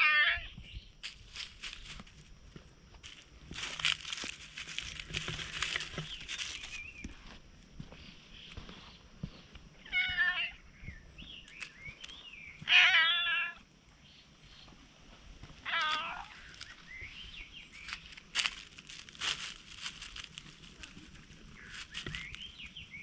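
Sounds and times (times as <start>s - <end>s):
cat meowing: 9.9s - 10.6s, 12.6s - 13.6s, 15.6s - 16.4s.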